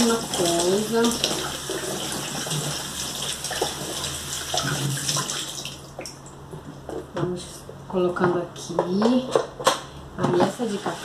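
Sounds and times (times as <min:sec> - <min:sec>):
tap water running into container: 0:00.0 - 0:06.2.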